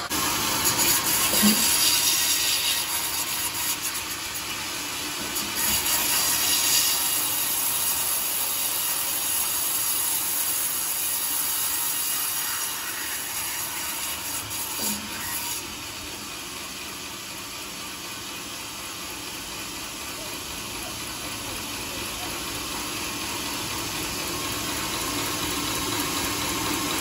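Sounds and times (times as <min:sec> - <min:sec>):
band saw rasping through log: 0:00.0 - 0:16.4.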